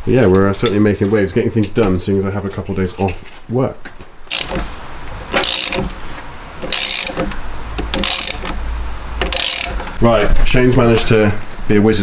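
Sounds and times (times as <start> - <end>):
socket ratchet clicking: 4.3 - 4.7, 5.3 - 6.0, 6.6 - 8.6, 9.2 - 10.0.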